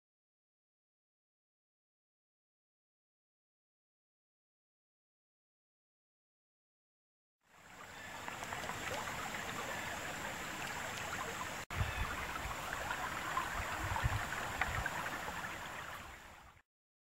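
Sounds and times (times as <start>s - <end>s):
creek babbling over stones: 7.5s - 16.6s.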